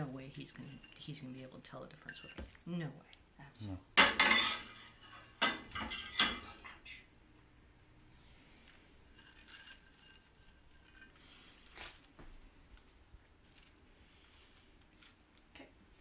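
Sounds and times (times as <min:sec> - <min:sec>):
metal spatula scraping a plate: 0:00.4 - 0:01.0, 0:04.2 - 0:06.6, 0:09.0 - 0:11.6.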